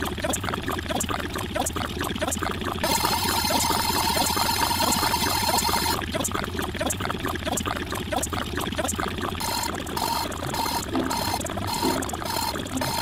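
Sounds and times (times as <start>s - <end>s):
jumble of looped sound effects: 0.0s - 13.0s
rapid clicks: 0.2s - 13.0s
repeating beep: 9.4s - 13.0s.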